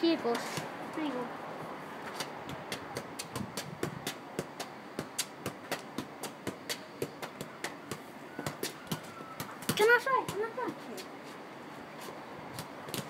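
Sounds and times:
light taps of foot on ball: 0:02.1 - 0:11.1.

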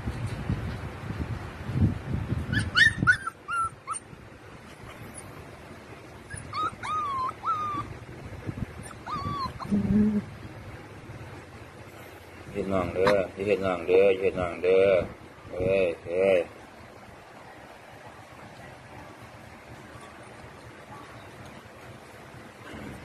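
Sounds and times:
wind rumble on microphone: 0:00.0 - 0:11.5
puppies whining: 0:02.5 - 0:05.4, 0:06.2 - 0:08.0, 0:08.8 - 0:10.3
puppies yipping: 0:02.5 - 0:05.4, 0:06.2 - 0:08.0, 0:08.8 - 0:09.8, 0:13.0 - 0:13.3.

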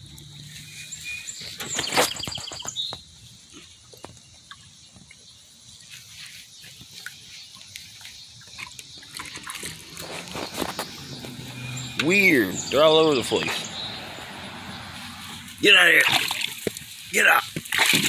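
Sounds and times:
puppy splashing and lapping water: 0:03.5 - 0:11.4, 0:15.9 - 0:18.0
sharp loud splash: 0:15.9 - 0:16.6, 0:17.6 - 0:18.0.

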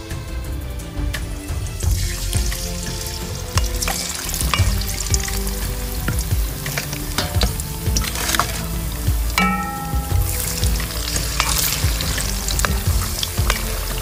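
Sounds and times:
fish deep-frying in oil: 0:01.8 - 0:14.0.

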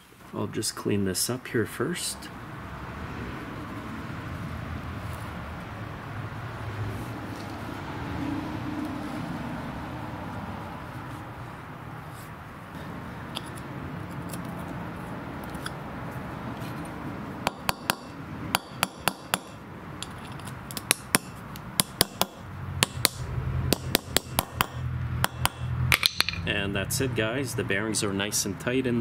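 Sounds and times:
hammer tapping on steel: 0:17.4 - 0:26.5.

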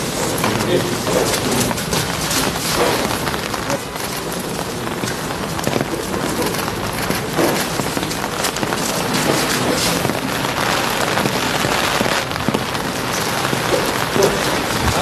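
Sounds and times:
steady rain pattering: 0:00.0 - 0:15.0.

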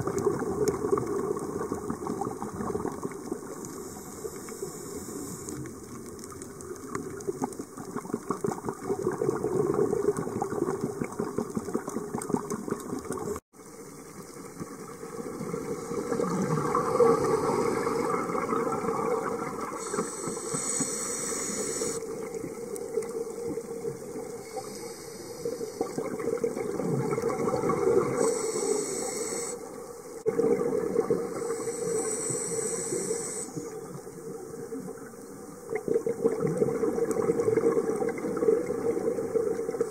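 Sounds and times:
underwater exhalation bubbling: 0:00.0 - 0:03.6, 0:06.8 - 0:13.4, 0:15.2 - 0:24.7, 0:25.4 - 0:28.6, 0:30.2 - 0:34.0, 0:35.6 - 0:39.9
regulator inhalation hiss: 0:03.7 - 0:05.6, 0:19.8 - 0:22.1, 0:24.3 - 0:26.0, 0:28.1 - 0:30.0, 0:31.2 - 0:33.8.

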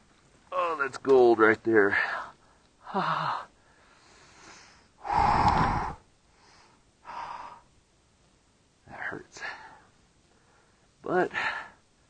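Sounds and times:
man breathing hard: 0:02.4 - 0:07.7.

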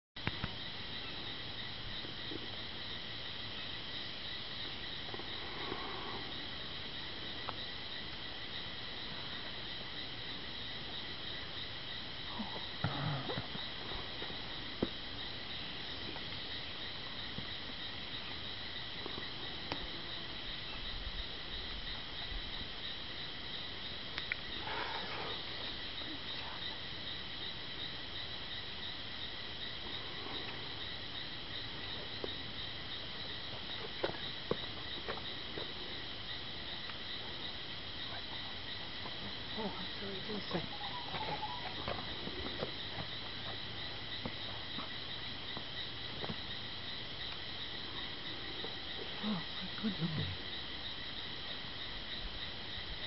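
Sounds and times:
insects chorus: 0:00.2 - 0:53.0
faint clicks: 0:24.1 - 0:24.5.

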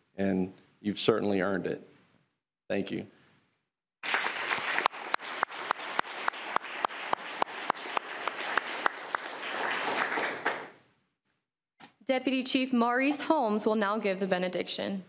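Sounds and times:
audience applauding: 0:04.0 - 0:10.8
sharp close claps: 0:04.0 - 0:10.8.

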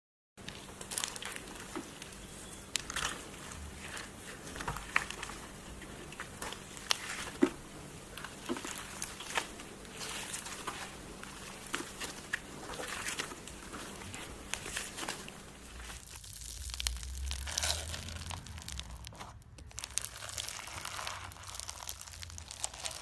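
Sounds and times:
hands squishing slime: 0:00.4 - 0:23.0
wet crackles and squelches: 0:00.4 - 0:23.0.

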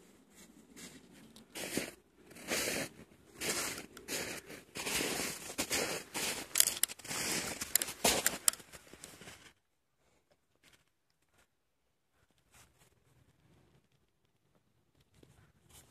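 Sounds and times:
snow crunching and swishing: 0:00.3 - 0:08.2.

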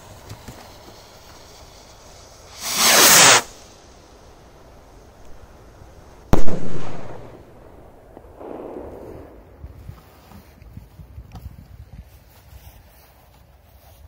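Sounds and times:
firework bang: 0:00.0 - 0:03.8, 0:06.3 - 0:09.6
firework rocket hiss: 0:00.0 - 0:10.5.

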